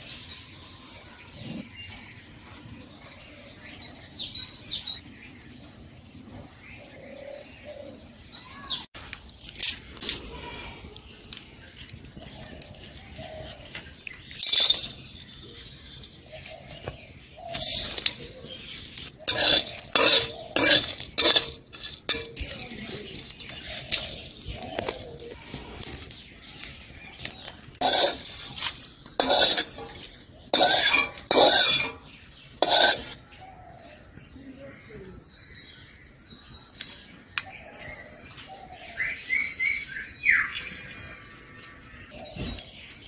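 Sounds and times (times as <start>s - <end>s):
spices clinking and scraping on iron: 9.0s - 33.5s.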